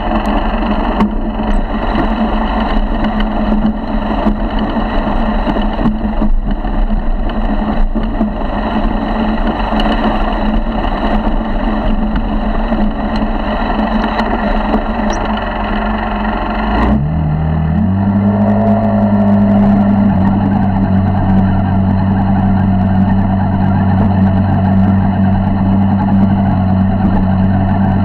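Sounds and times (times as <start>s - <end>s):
motorized bicycle engine running: 0.0s - 16.8s.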